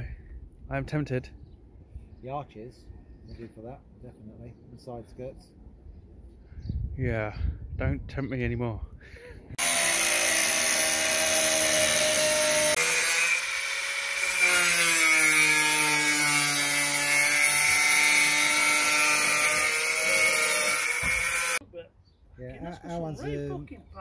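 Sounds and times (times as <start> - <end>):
angle grinder cutting metal: 9.6 - 21.6.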